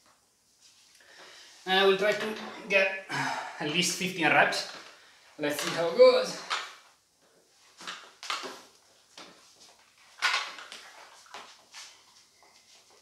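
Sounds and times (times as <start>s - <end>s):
rustling: 4.7s - 13.0s.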